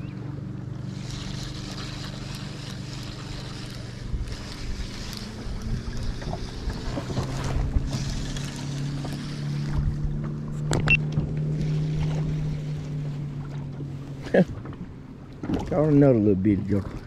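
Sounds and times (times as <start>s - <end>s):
fishing reel whirring: 0.8s - 9.7s
wind buffeting microphone: 3.1s - 17.0s.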